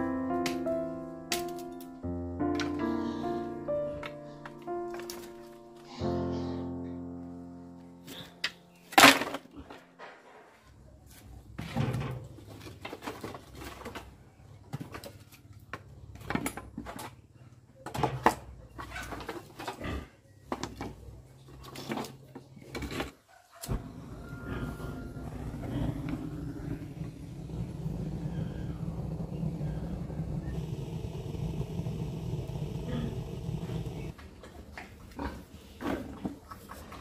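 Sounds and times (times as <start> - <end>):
faint low hum: 23.7 - 34.2.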